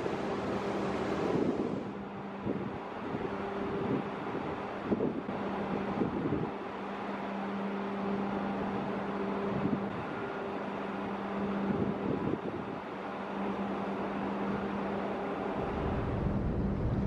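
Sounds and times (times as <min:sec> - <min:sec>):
wind hiss: 0:00.0 - 0:06.5
low machine hum: 0:00.0 - 0:17.0
wind buffeting microphone: 0:15.6 - 0:17.0.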